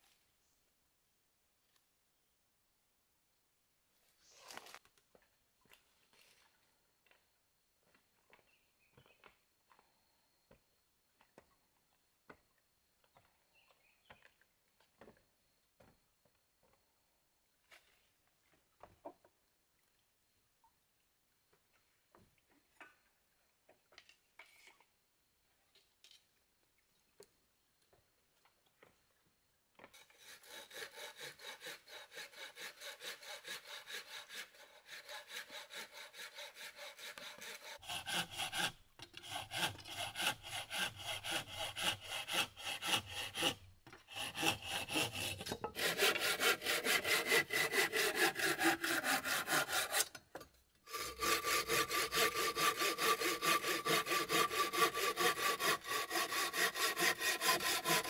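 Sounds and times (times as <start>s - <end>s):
hand saw cutting wood: 29.9s - 58.0s.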